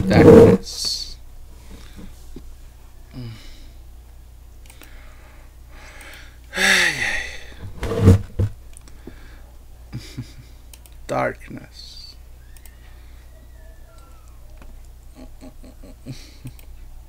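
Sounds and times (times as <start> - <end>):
person making wordless vocal sounds: 6.5 - 7.4.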